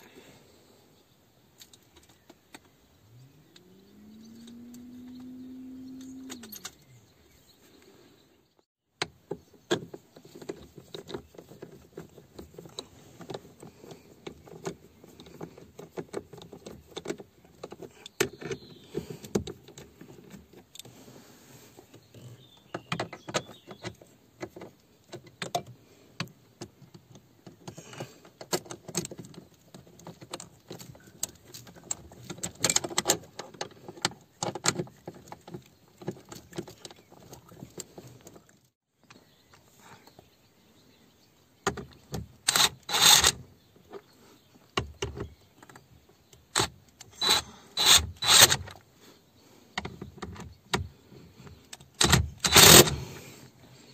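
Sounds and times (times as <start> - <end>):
small parts clicking and rattling: 41.6 - 44.0, 45.0 - 48.8, 51.4 - 53.1.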